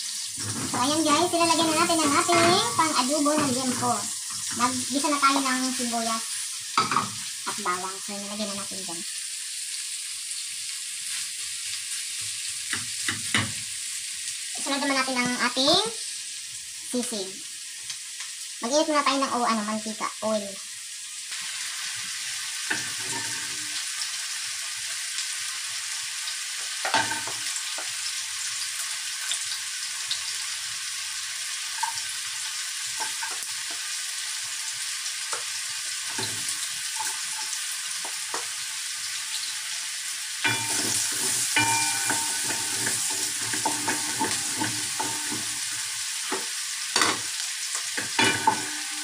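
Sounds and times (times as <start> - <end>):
food sizzling in frying pan: 0.0 - 49.0
spoon knocking against pan: 40.4 - 45.7, 48.0 - 49.0
wooden spoon stirring: 40.5 - 45.7.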